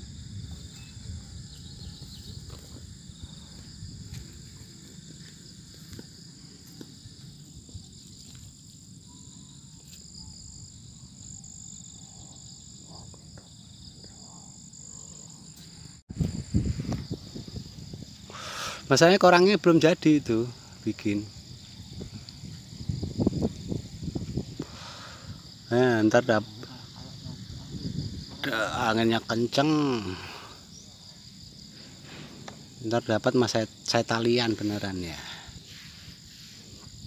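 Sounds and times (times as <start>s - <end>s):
wind rumble on microphone: 0.0s - 6.2s, 16.1s - 18.4s, 21.2s - 25.7s, 26.8s - 28.5s
insect chorus droning: 0.0s - 37.0s.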